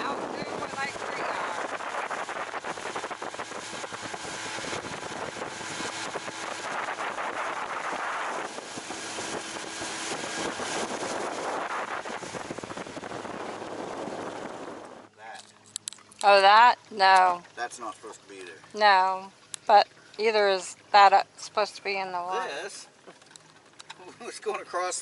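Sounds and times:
wind buffeting microphone: 0.0s - 15.2s
outboard motor hum: 0.0s - 25.0s
water rushing along hull: 0.0s - 25.0s.

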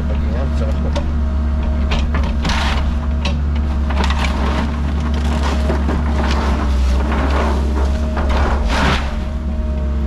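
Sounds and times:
diesel engine running: 0.0s - 10.0s
bucket crunching wood and debris: 2.3s - 9.5s.

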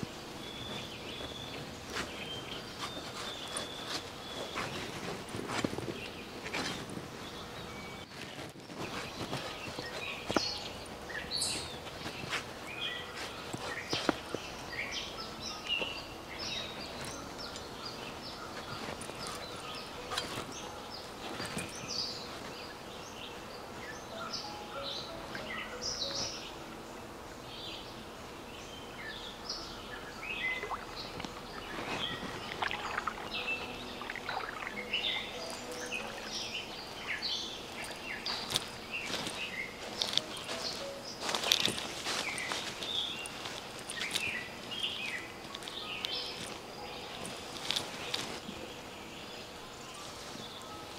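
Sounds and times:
birds chirping: 0.0s - 50.9s
water sloshing: 30.4s - 40.8s.

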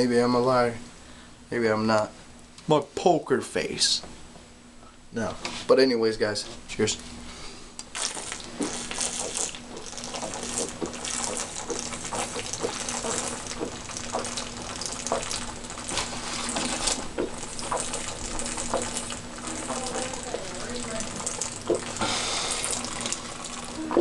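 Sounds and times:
beer gurgling from bottle: 7.9s - 24.0s.

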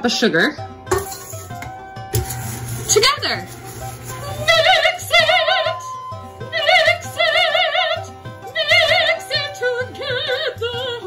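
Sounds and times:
soprano singing operatically: 4.1s - 11.0s.

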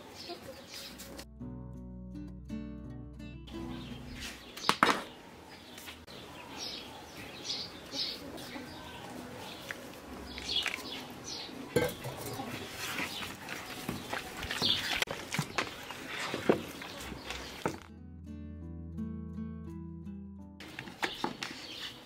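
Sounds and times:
birds chirping: 0.0s - 1.2s, 3.5s - 17.8s, 20.6s - 22.0s.

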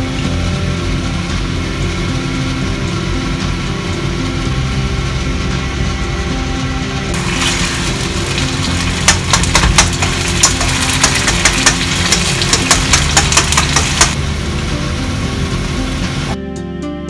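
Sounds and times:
sauce sizzling: 7.1s - 14.3s.

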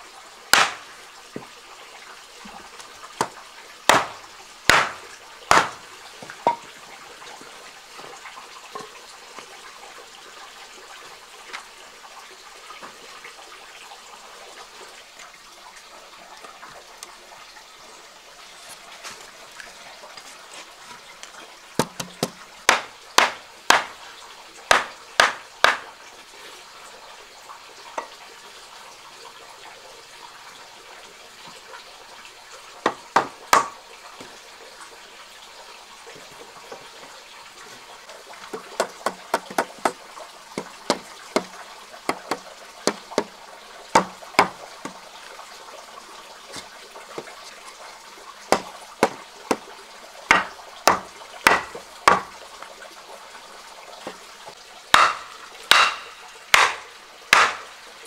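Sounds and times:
tool knocking on wood: 3.9s - 5.8s, 21.8s - 23.9s, 24.7s - 25.8s, 38.5s - 40.0s, 40.6s - 41.5s, 42.1s - 43.3s, 44.0s - 45.0s, 48.5s - 49.6s, 50.3s - 52.3s.

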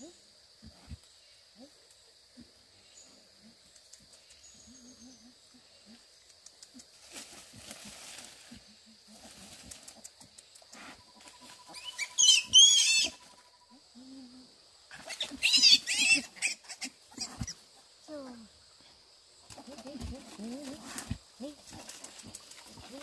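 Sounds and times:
piglets squealing: 11.2s - 13.4s, 14.9s - 17.6s.

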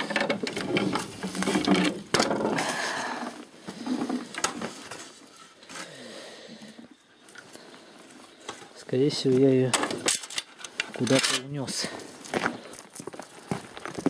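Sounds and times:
hand tools clattering: 0.0s - 2.8s, 8.4s - 11.9s.

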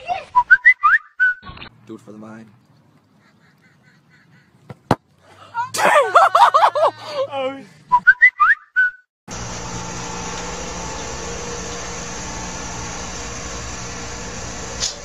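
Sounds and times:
rising whistle-like chirps: 0.4s - 1.5s
outdoor background hiss: 9.3s - 15.0s.

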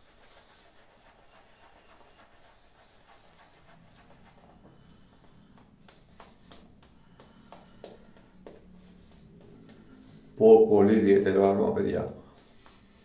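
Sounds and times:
shaving brush rubbing on stubble: 0.0s - 5.1s.

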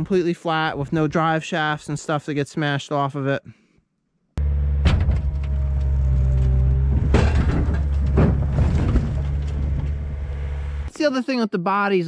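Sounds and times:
heavy machine engine running: 4.4s - 10.9s
pickup truck crashing onto snow: 4.6s - 9.8s.

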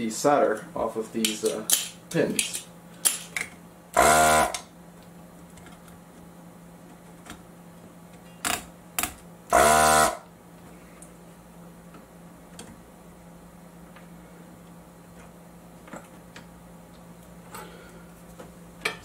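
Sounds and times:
desoldering pump buzzy strokes: 4.0s - 4.6s, 9.5s - 10.3s.

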